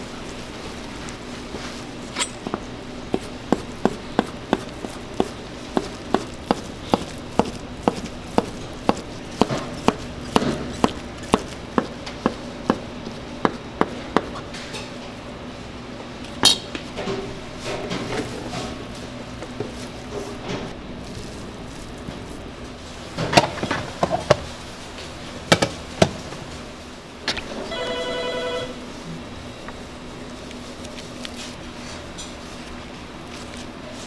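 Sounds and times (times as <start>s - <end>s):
steady low hum: 0.0s - 34.0s
pulsing electronic ringing tone: 27.6s - 28.8s.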